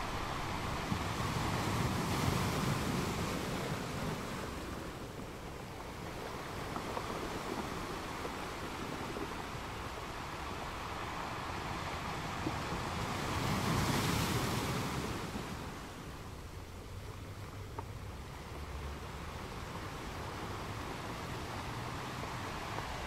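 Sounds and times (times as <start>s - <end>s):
ocean waves breaking: 0.0s - 23.0s.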